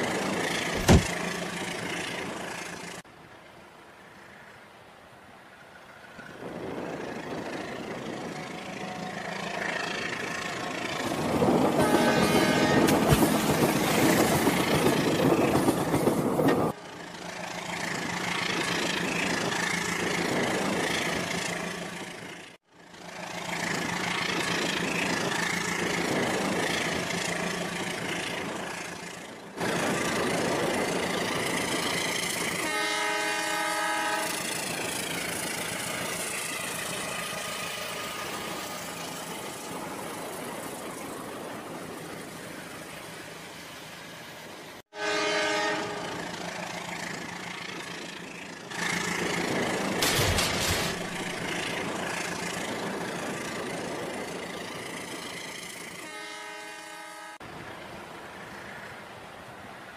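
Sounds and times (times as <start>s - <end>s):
toy train horn: 11.8s - 13.0s, 32.6s - 34.5s, 44.9s - 46.2s, 56.0s - 57.4s.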